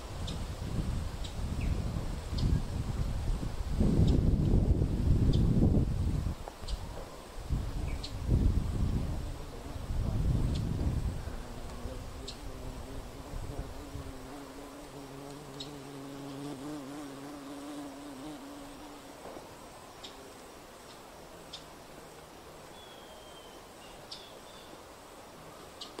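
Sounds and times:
flying insect buzzing: 7.5s - 22.8s.

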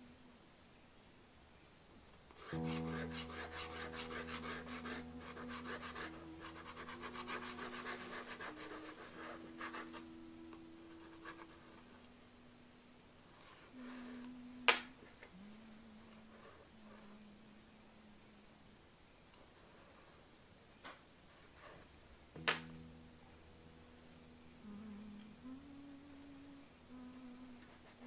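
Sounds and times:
low hum of held tones: 0.0s - 28.0s
pastel scratching on paper: 2.4s - 10.2s, 10.9s - 11.9s.

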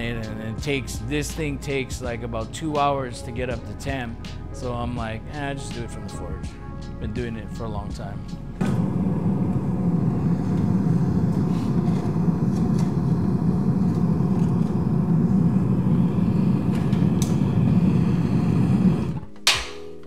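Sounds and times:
gas forge flame roaring: 8.6s - 19.3s.

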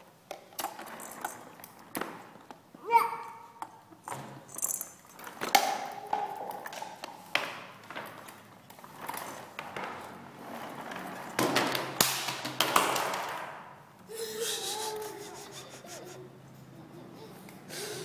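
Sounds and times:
rustling and scraping: 6.6s - 12.0s.

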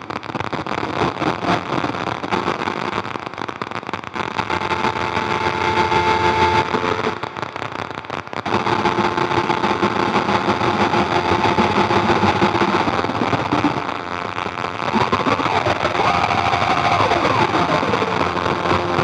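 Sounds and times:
gritty synth noise drone: 8.4s - 19.0s.

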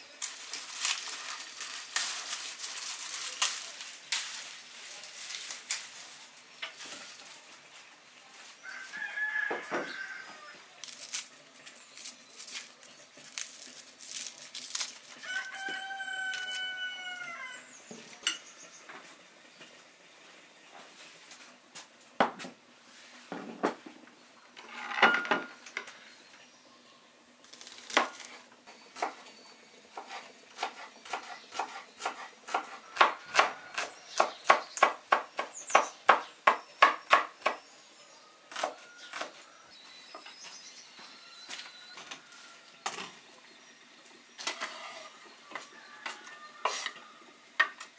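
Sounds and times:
rooster crowing: 8.6s - 10.6s, 15.2s - 17.8s, 41.0s - 42.8s, 44.7s - 47.5s.

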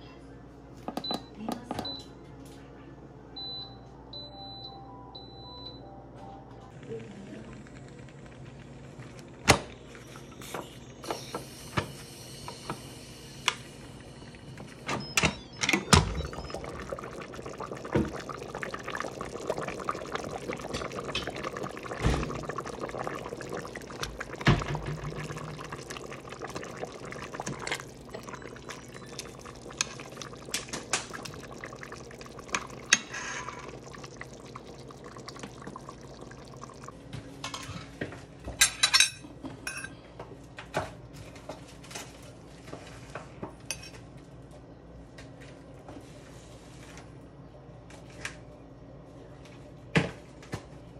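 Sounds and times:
liquid sloshing and dripping: 14.4s - 37.7s.

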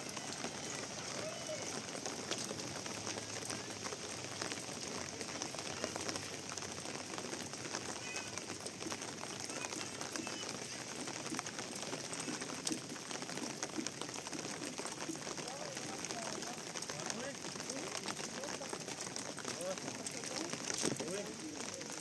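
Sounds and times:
rain pattering: 0.0s - 22.0s.

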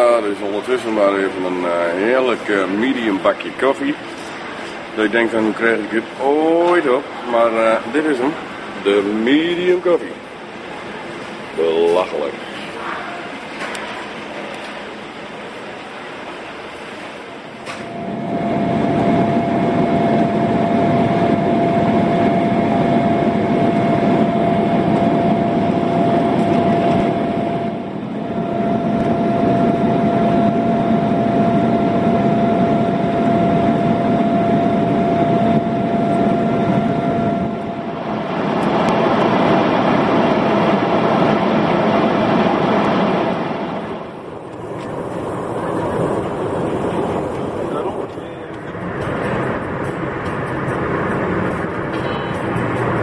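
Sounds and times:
airliner engine and airflow roar: 0.0s - 53.0s
thin steady whine: 0.0s - 53.0s
car road noise: 44.5s - 53.0s.

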